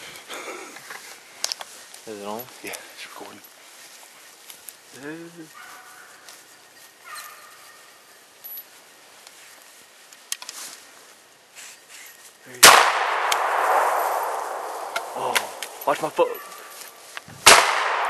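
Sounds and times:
faint rustles and ticks: 0:00.0 - 0:12.5
gunshot echoing: 0:12.6 - 0:15.9, 0:17.4 - 0:18.0.

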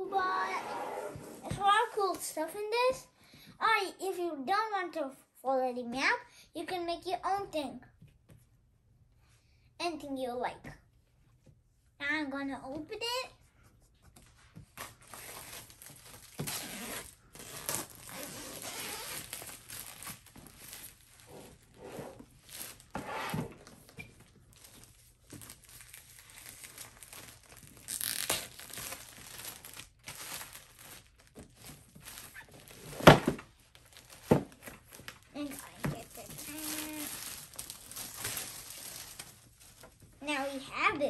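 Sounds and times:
plastic wrap crinkling and tearing: 0:14.8 - 0:22.9, 0:23.6 - 0:40.2.

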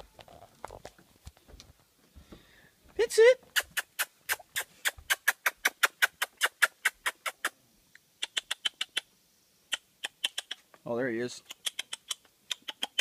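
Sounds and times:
person imitating chipmunk chips: 0:03.0 - 0:07.6, 0:08.2 - 0:09.1, 0:09.7 - 0:10.7, 0:11.3 - 0:13.0.

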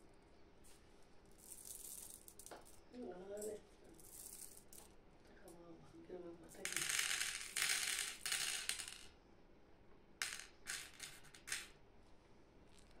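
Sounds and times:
candy clattering into wooden tray: 0:06.6 - 0:09.1, 0:10.2 - 0:11.7.

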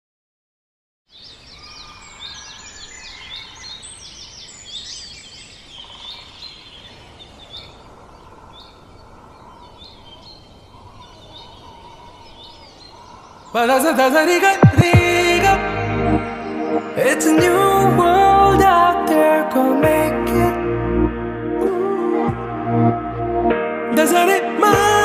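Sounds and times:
birds chirping: 0:01.1 - 0:20.5.

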